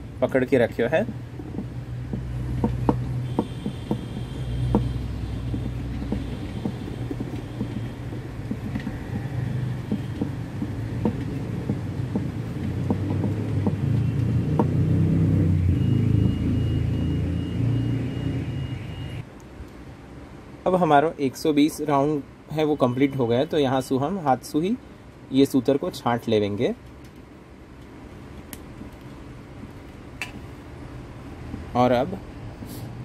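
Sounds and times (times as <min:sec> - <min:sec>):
metal pot spinning on wood: 0:01.4 - 0:13.9.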